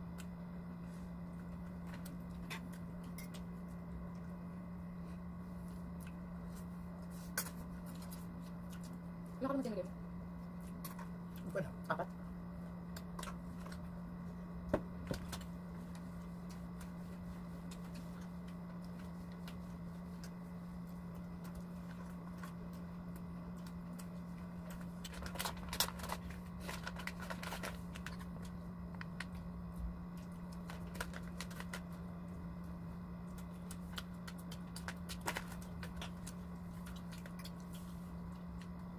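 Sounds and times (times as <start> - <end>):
steady low hum: 0.0 - 38.9
food wrappers crinkling: 23.6 - 29.5, 30.2 - 32.1, 33.2 - 38.8.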